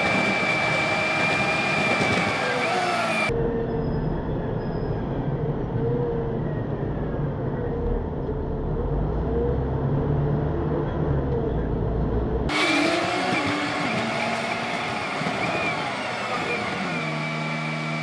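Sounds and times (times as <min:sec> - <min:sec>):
traffic noise: 0:00.0 - 0:18.0.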